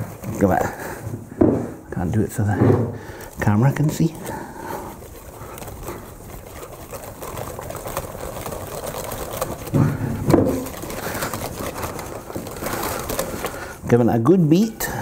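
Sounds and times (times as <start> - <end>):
whisk beating batter in bowl: 3.2 - 13.8.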